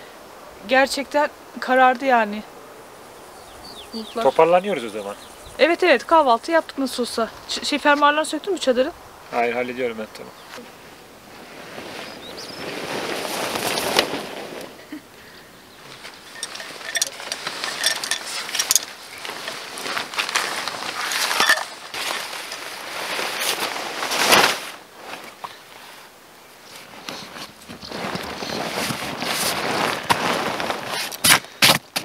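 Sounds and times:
nylon tent fabric rustling: 10.5 - 32.0
metal tent pegs clinking: 13.3 - 14.7, 15.8 - 24.8.

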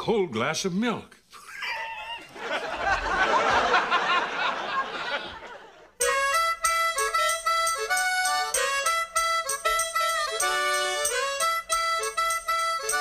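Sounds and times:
studio audience laughing: 1.4 - 6.0
sitcom theme music: 6.0 - 13.0.

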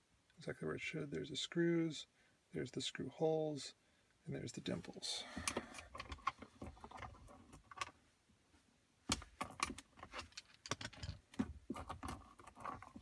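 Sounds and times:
small metal screws clinking: 9.4 - 13.0.

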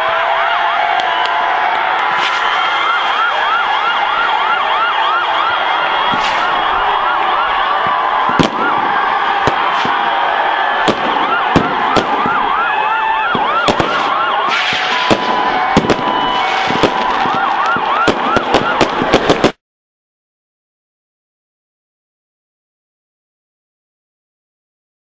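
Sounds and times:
crowd celebrating: 0.0 - 19.6
siren-like whooping tone: 1.8 - 19.5
firecracker cracks: 2.0 - 2.8, 6.0 - 6.7, 8.2 - 12.4, 13.3 - 19.6.

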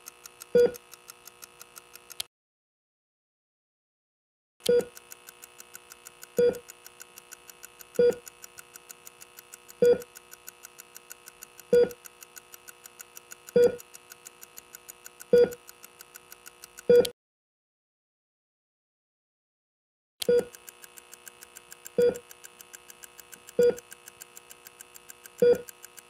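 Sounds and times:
fast even ticking: 20.4 - 26.0.

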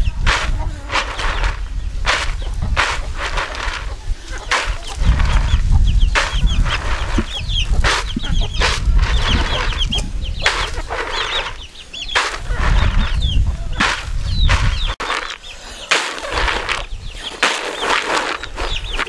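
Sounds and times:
chickens clucking: 0.0 - 19.0
chicks peeping: 0.0 - 19.0
nuts rattling in a plastic basin: 0.3 - 3.9, 17.4 - 19.0.

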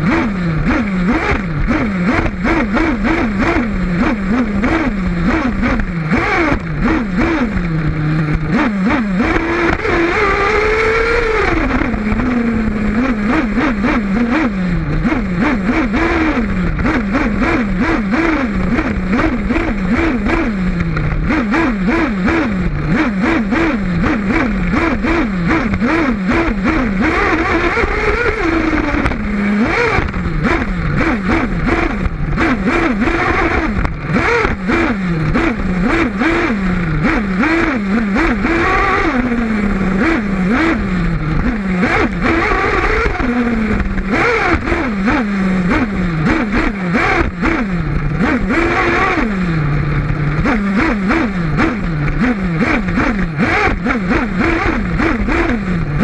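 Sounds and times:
nitro engine revving: 0.0 - 56.0.

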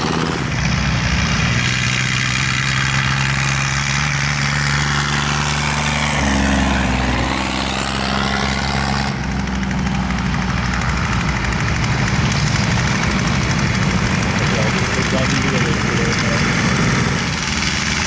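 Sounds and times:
tractor engines running: 0.0 - 18.0.

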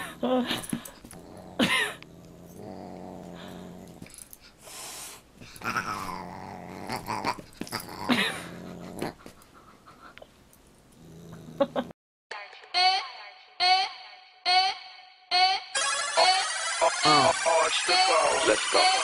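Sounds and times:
large dog growling: 1.0 - 4.2, 5.6 - 9.3, 10.9 - 11.9.

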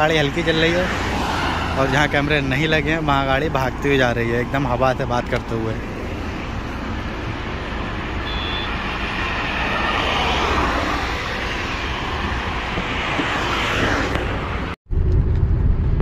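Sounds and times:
road traffic passing at speed: 0.0 - 16.0.

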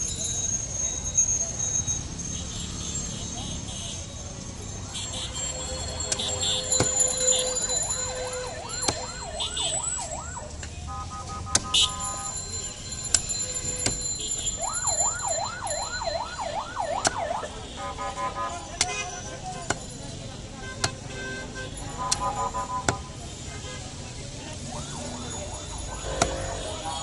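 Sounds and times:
siren wailing: 7.1 - 10.6, 14.6 - 17.5, 24.6 - 27.0
steady horn-like tone: 25.9 - 27.0.

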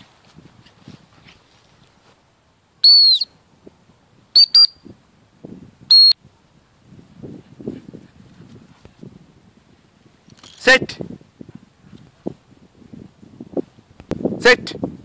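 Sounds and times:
footsteps in grass: 0.0 - 2.4
dog whistle blasts: 2.8 - 3.3, 4.4 - 4.8, 5.9 - 6.2.

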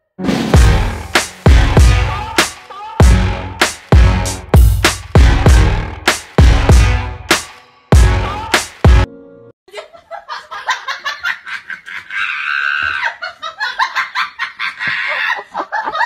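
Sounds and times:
bass-heavy music hits: 0.2 - 9.1
people laughing: 9.7 - 16.0.

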